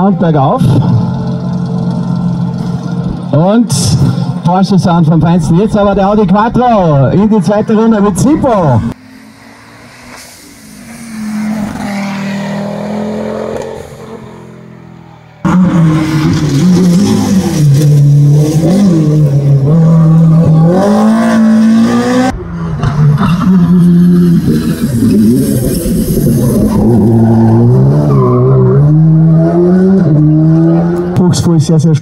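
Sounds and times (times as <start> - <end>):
rally car engine revving: 0.0 - 32.0.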